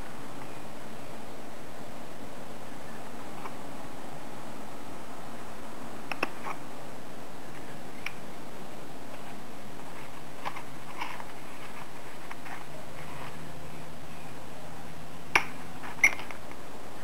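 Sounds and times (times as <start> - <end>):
steady hiss: 0.0 - 17.0
paper rustling: 9.1 - 13.5.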